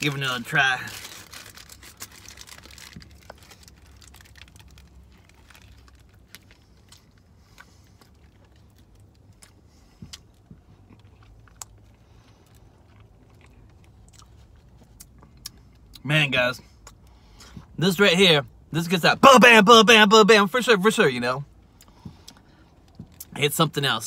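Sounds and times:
low steady hum: 0:00.0 - 0:24.0
biting and chewing: 0:01.0 - 0:15.9.

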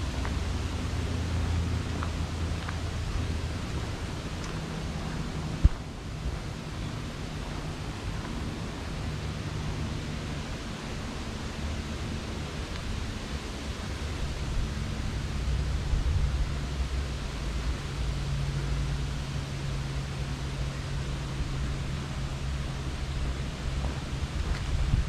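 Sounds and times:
wind in trees: 0:00.0 - 0:25.0
low rumble: 0:13.4 - 0:25.0.

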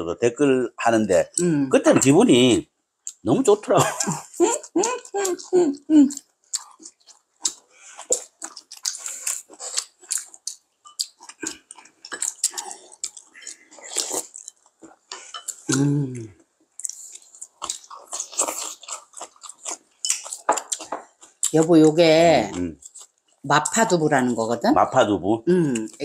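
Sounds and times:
people chewing and eating: 0:00.9 - 0:26.0
person humming: 0:04.4 - 0:06.2, 0:15.7 - 0:16.4.

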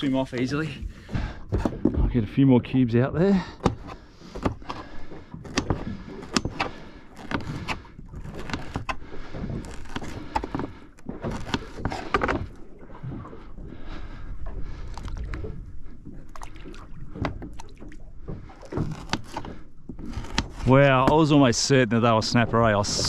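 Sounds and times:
sharp knocks and clicks: 0:03.6 - 0:12.5, 0:17.1 - 0:21.5.

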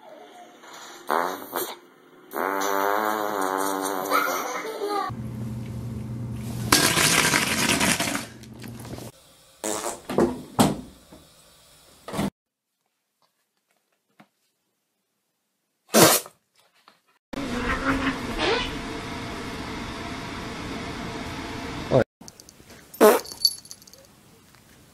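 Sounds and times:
fart sounds: 0:00.8 - 0:04.6, 0:09.6 - 0:10.2, 0:15.9 - 0:16.3, 0:23.0 - 0:23.4.

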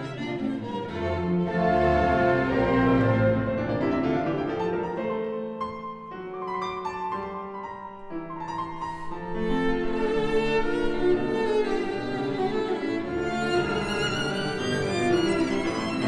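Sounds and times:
violin and cello: 0:00.0 - 0:04.5, 0:08.7 - 0:16.0
piano: 0:00.0 - 0:16.0.

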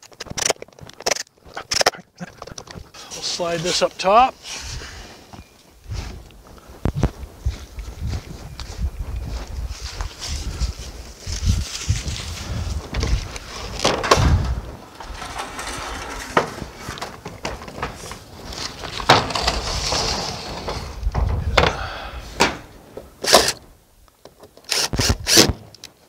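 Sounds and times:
knocks and scrapes of rain gutter: 0:11.6 - 0:23.6
ladder being climbed: 0:12.9 - 0:23.6.

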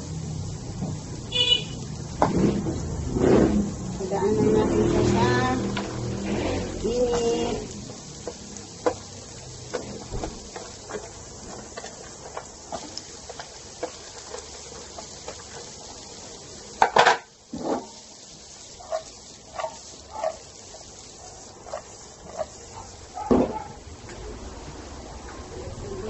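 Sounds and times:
carrots sizzling in a frying pan: 0:00.0 - 0:26.0
clatter and scrape from pan: 0:02.2 - 0:03.7, 0:05.8 - 0:07.3, 0:16.8 - 0:18.0, 0:18.8 - 0:20.4.

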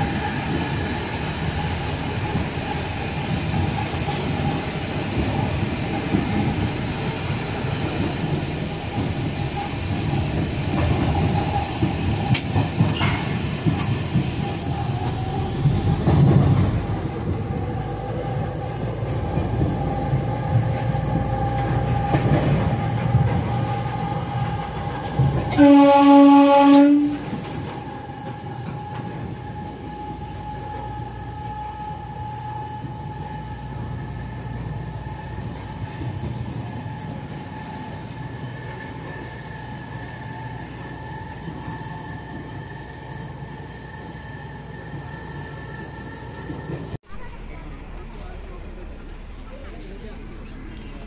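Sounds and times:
electric locomotive running: 0:00.0 - 0:51.0
locomotive horn blast: 0:25.2 - 0:27.6.

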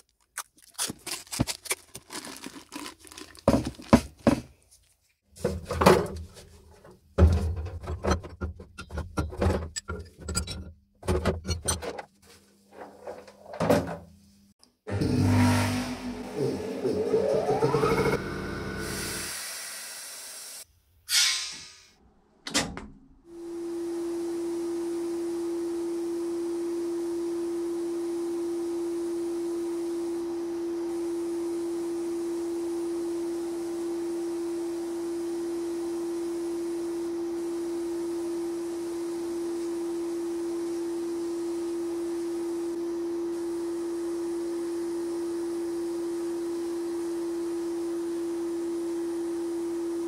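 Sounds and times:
steady pure tone: 0:14.9 - 0:19.3.

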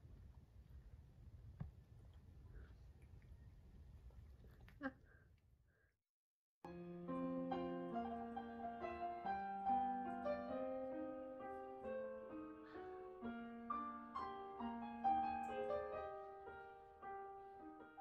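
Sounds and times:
gentle piano music: 0:06.7 - 0:18.0.

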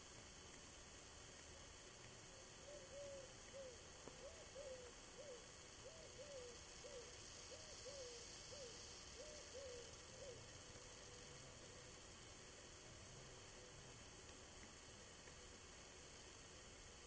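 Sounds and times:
dove cooing: 0:02.6 - 0:11.7.

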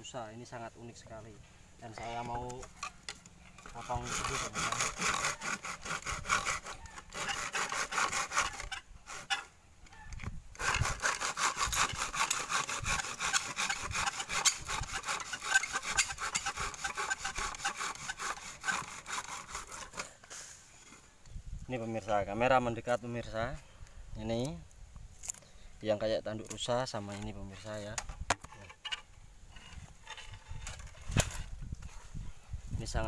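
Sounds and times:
hand saw cutting bamboo: 0:02.0 - 0:09.5, 0:10.5 - 0:20.6.

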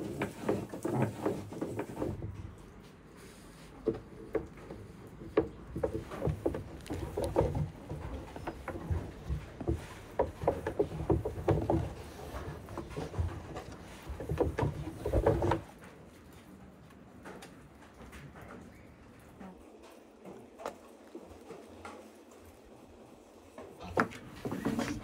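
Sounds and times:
hands rolling dough: 0:00.0 - 0:17.2
wooden board knocks and creaks: 0:03.8 - 0:15.8.

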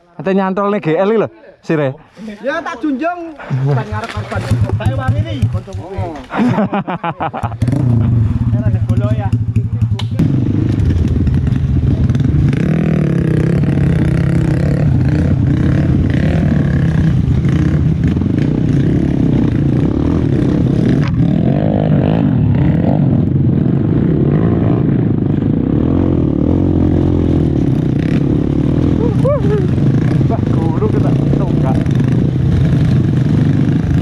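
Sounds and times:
motorcycle engine under load: 0:04.0 - 0:06.6, 0:07.4 - 0:21.2.

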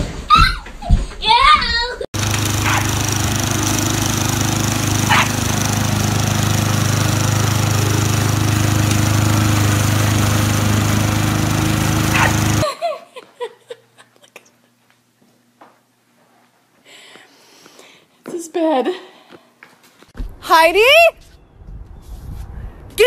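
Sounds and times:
lawn mower engine running: 0:02.2 - 0:12.6
dog barking: 0:02.6 - 0:02.9, 0:05.1 - 0:05.4, 0:12.1 - 0:12.4.

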